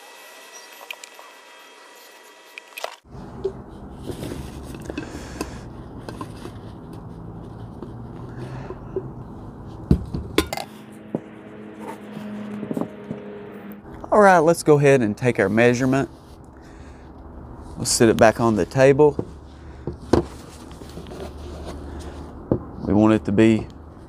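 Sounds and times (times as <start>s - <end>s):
steady low rumble: 3.1s - 19.8s
glass carafe clinking and scraping: 10.3s - 10.7s.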